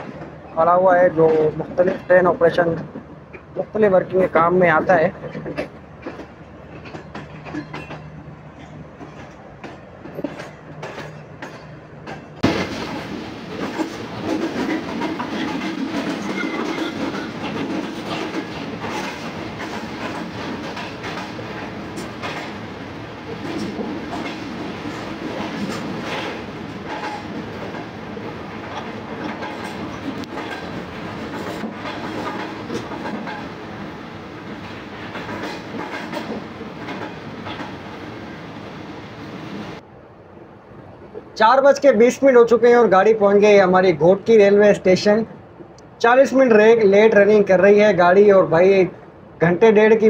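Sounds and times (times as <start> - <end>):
train wheels clattering: 0.0 - 39.8.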